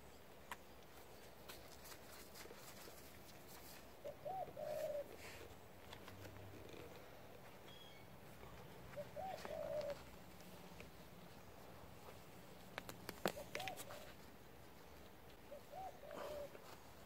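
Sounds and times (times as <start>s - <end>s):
dove cooing: 4.0s - 5.7s, 8.4s - 10.8s, 13.1s - 14.2s, 15.4s - 17.0s.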